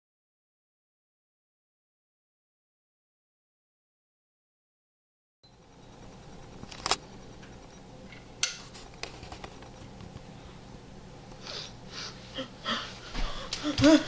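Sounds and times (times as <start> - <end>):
steady low hum: 5.4 - 14.0.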